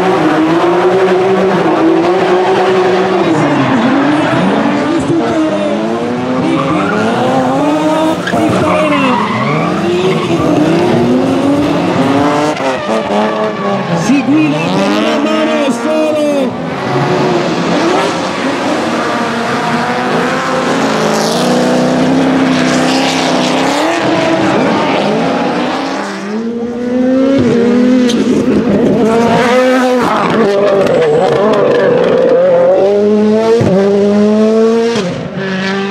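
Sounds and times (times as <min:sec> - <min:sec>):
car engines revving hard: 0:00.0 - 0:35.9
tyres squealing: 0:08.2 - 0:10.9.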